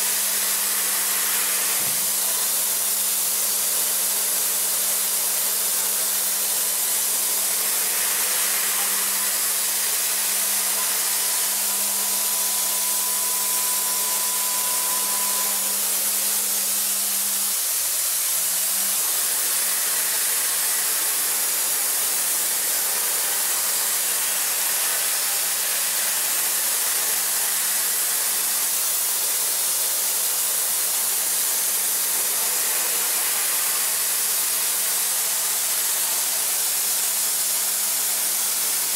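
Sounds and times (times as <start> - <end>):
milling machine hiss: 0.0 - 38.9
machine hum: 7.3 - 17.8
faint thin whine: 7.8 - 17.5.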